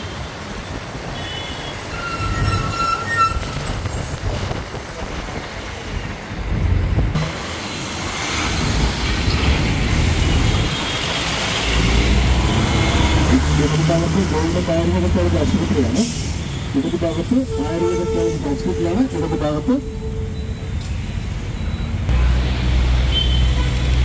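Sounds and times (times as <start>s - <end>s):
traffic and engine rumble: 0.0s - 24.0s
wind noise on microphone: 2.2s - 5.7s, 6.4s - 7.2s.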